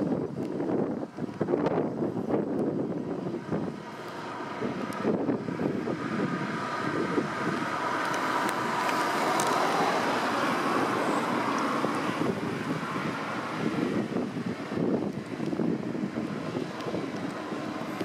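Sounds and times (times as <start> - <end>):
wind buffeting microphone: 0.0 - 18.0
distant ship engine hum: 2.1 - 18.0.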